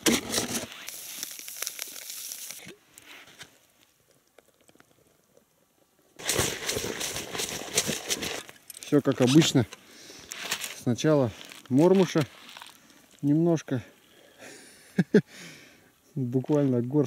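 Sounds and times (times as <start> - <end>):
bag rustling and crinkling: 0.0 - 3.8, 6.2 - 13.5.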